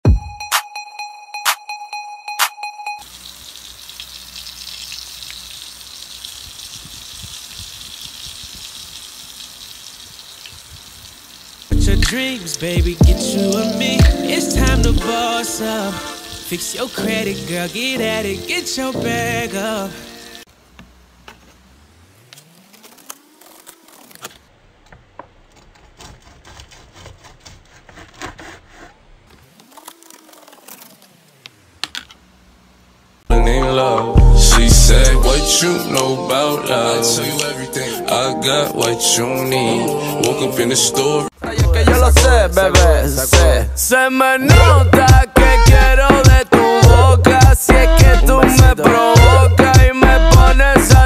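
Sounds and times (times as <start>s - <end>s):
pork sizzling in oil: 3.0s - 14.0s, 15.6s - 20.5s.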